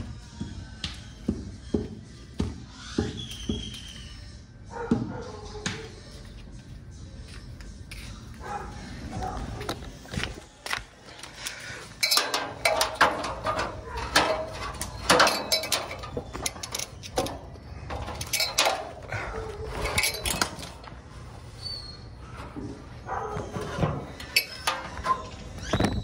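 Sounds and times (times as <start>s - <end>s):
hard objects clattering and clinking: 11.8s - 21.0s
handling noise: 12.0s - 21.3s, 22.2s - 26.0s.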